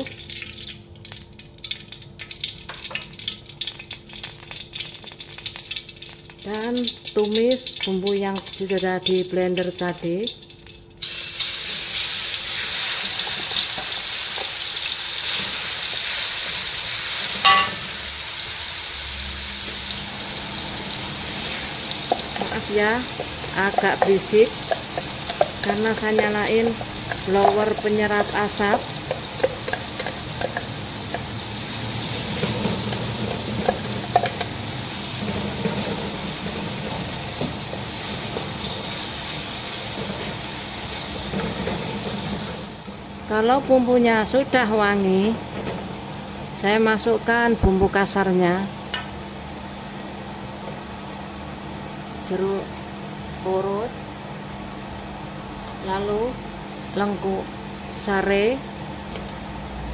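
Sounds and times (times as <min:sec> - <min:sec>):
paste sizzling in hot oil: 0:03.6 - 0:42.8
wooden spatula scraping wok: 0:31.9 - 0:42.8.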